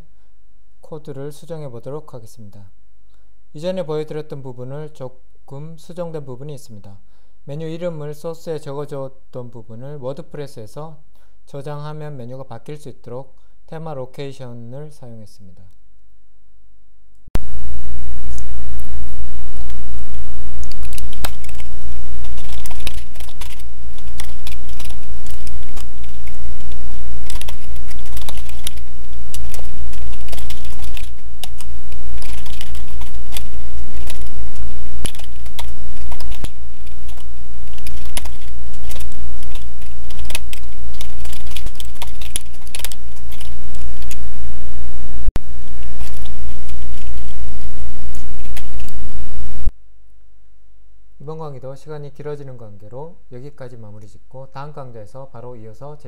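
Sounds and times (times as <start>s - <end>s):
loud low hum: 17.4s - 49.7s
keyboard typing clicks: 22.3s - 34.3s, 35.0s - 44.2s.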